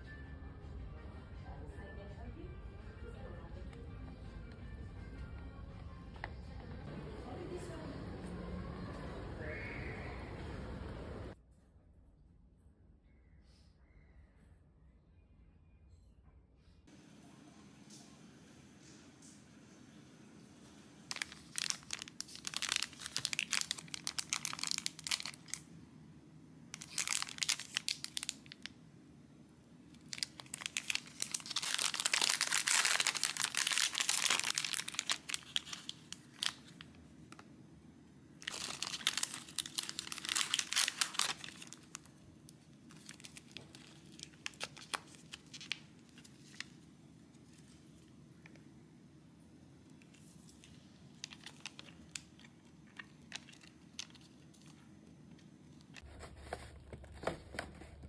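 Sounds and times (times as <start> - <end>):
plastic wrappers crinkling: 20.6 - 25.8, 26.7 - 28.8, 29.8 - 37.6, 38.3 - 48.6, 49.8 - 58.0.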